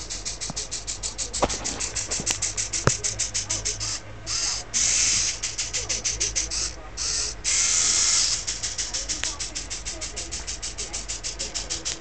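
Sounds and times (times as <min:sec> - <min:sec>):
small motors driving plastic tracks: 0:06.6 - 0:08.5.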